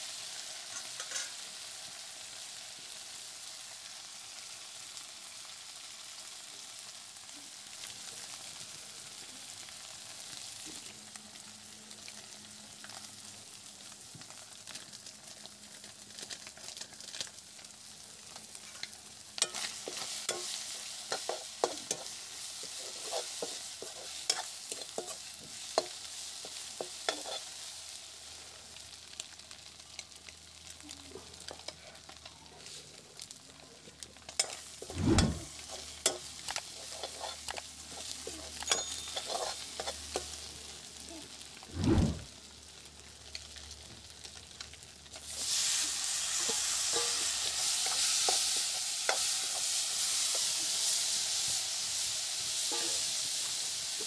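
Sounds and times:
fish sizzling: 0:00.0 - 0:54.0
loud sizzle of tomatoes in oil: 0:00.0 - 0:54.0
metal ladle scraping pan: 0:34.4 - 0:40.2.

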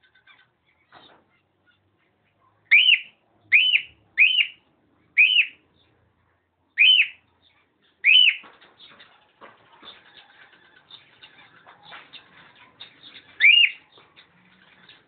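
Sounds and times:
cockatiel whistled calls: 0:02.7 - 0:04.6, 0:05.2 - 0:05.6, 0:06.8 - 0:07.2, 0:08.0 - 0:08.4, 0:13.4 - 0:13.8.

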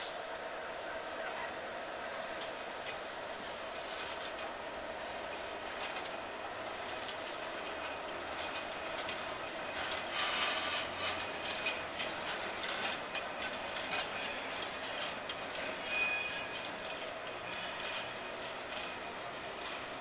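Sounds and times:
train wagons rolling on rails: 0:00.0 - 0:20.0
clicks and clanks from couplings: 0:02.1 - 0:03.0, 0:03.9 - 0:04.5, 0:05.2 - 0:20.0
high wheel squeal: 0:15.6 - 0:16.8, 0:17.4 - 0:18.2.

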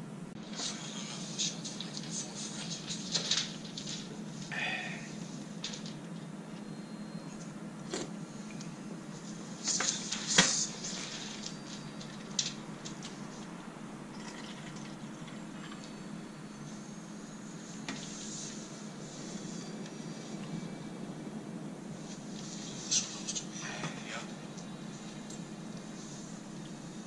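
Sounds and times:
eating noises: 0:14.1 - 0:15.8.

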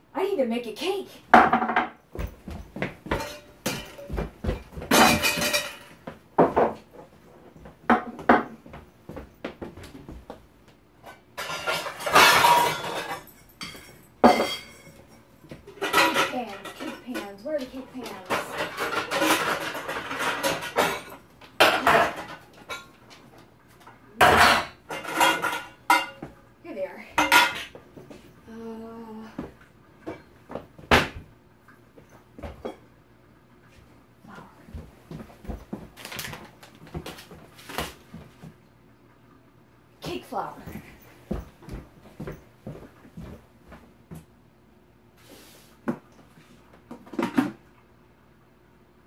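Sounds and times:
dishes and utensils clinking: 0:03.0 - 0:06.8, 0:11.0 - 0:23.0, 0:23.9 - 0:26.4, 0:27.2 - 0:27.8
metal pots and pans clattering: 0:03.1 - 0:06.8, 0:11.0 - 0:23.0, 0:24.2 - 0:26.3, 0:27.2 - 0:27.8.

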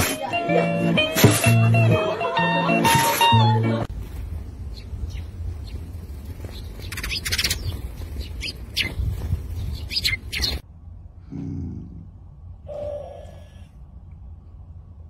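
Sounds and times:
wings fluttering: 0:03.9 - 0:10.6
sparrows chirping: 0:04.5 - 0:10.6
low steady rumble: 0:10.6 - 0:15.0.

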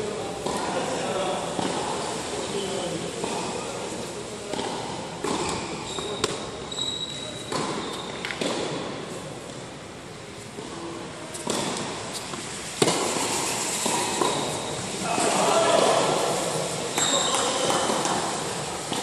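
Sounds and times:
tennis ball struck by rackets: 0:00.4 - 0:00.7, 0:04.5 - 0:06.6, 0:07.5 - 0:09.1, 0:11.3 - 0:14.8
ball bouncing on hard court: 0:04.5 - 0:06.5, 0:07.5 - 0:08.8, 0:11.4 - 0:11.9, 0:12.8 - 0:14.8.

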